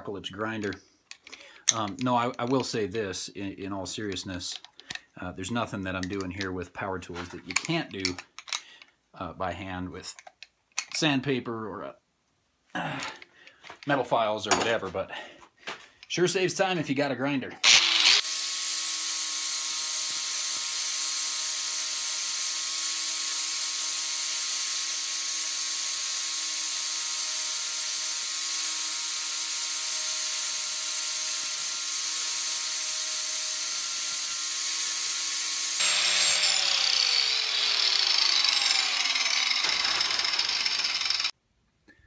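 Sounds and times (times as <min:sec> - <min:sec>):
grinder disc spinning down: 0:17.6 - 0:41.3
angle grinder grinding steel: 0:17.6 - 0:41.4.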